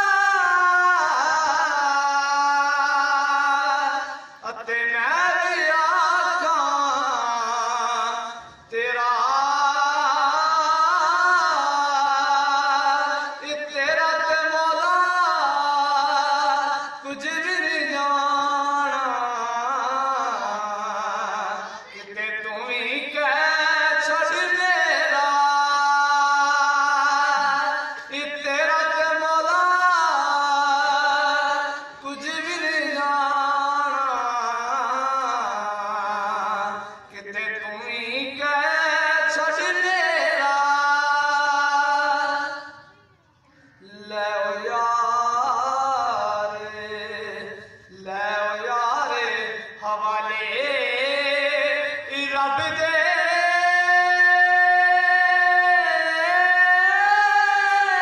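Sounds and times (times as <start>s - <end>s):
man singing unaccompanied: 0.0s - 42.9s, 43.8s - 58.0s.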